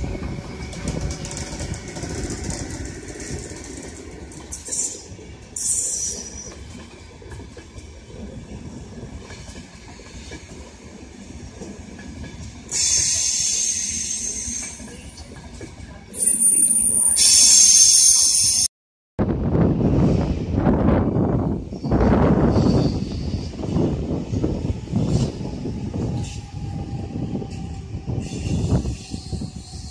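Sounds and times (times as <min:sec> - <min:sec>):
train wheels squealing on rails: 0:00.0 - 0:07.0, 0:12.5 - 0:18.7, 0:21.6 - 0:29.9
train rumbling slowly: 0:00.0 - 0:16.4, 0:19.2 - 0:29.9.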